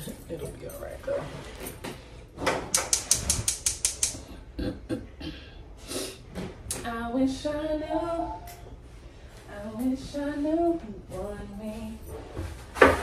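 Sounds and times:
woman singing: 0:06.7 - 0:08.6, 0:09.5 - 0:12.2.

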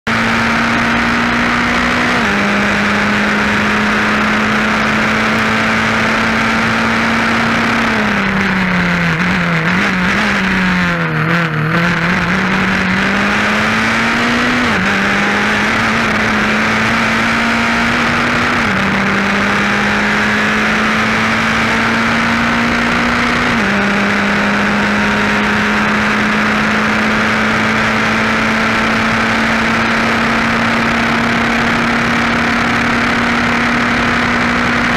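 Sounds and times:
race car engine revving: 0:00.0 - 0:34.9
wind and road noise: 0:00.1 - 0:34.9.

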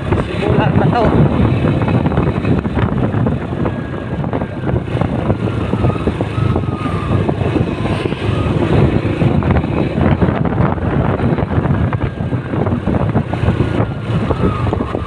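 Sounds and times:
vehicle engine and tyres rumbling: 0:00.0 - 0:15.0.

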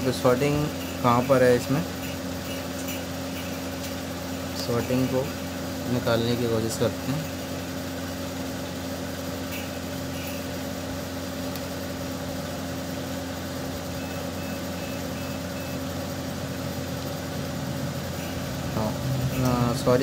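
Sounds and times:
low mechanical hum with tones: 0:00.0 - 0:20.0
short high beeps: 0:14.0 - 0:15.8.

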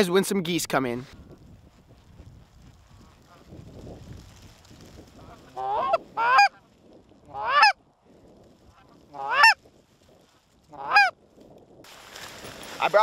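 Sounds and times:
goose honking: 0:05.2 - 0:06.6, 0:07.3 - 0:07.8, 0:09.1 - 0:09.6, 0:10.7 - 0:11.1.

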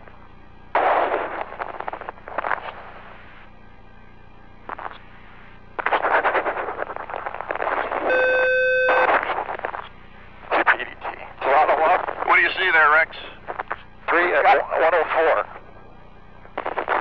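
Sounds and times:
radio static hiss: 0:00.0 - 0:17.0
electronic beep: 0:08.1 - 0:09.1.

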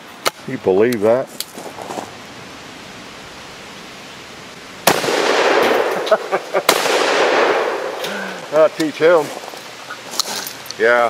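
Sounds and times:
shotgun blasts echoing: 0:04.8 - 0:08.1.

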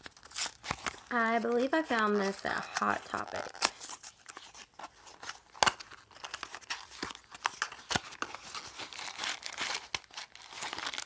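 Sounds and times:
wrapping crinkling: 0:00.0 - 0:11.0.

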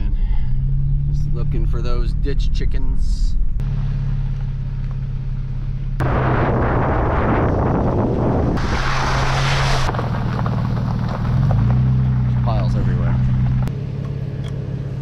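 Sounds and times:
vehicle engine hum: 0:00.0 - 0:15.0
tyres rumbling on gravel: 0:03.6 - 0:13.7.

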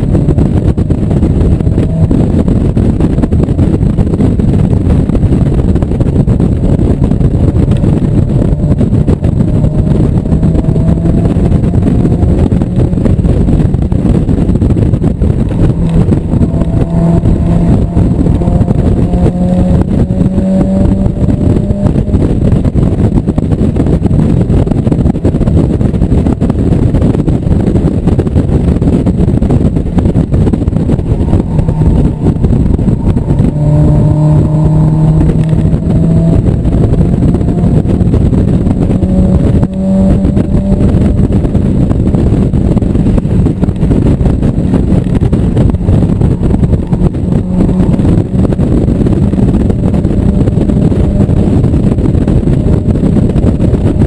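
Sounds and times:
car engine running hard: 0:00.0 - 0:54.0
heavy wind rush: 0:00.0 - 0:54.0.

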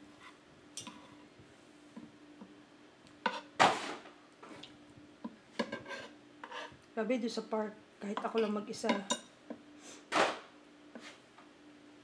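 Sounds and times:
faint steady hum: 0:00.0 - 0:12.0
cutlery scraping on wooden plate: 0:03.2 - 0:03.9, 0:05.6 - 0:06.7.

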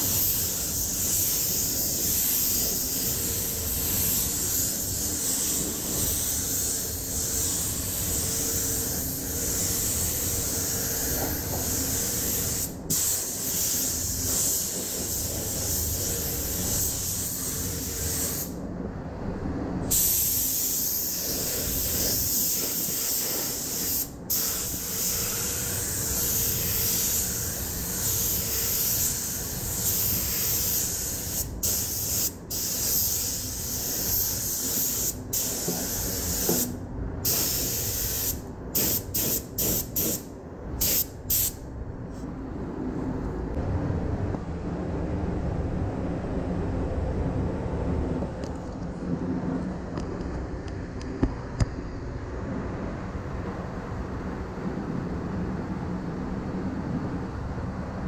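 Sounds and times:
paint spray gun hissing: 0:00.0 - 0:18.6, 0:19.9 - 0:41.6.

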